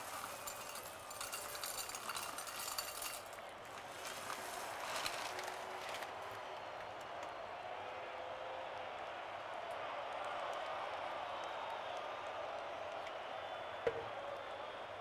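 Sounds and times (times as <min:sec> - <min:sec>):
snacks shaken into ceramic bowl: 0:00.0 - 0:06.1
snack packet crinkling: 0:00.0 - 0:06.4.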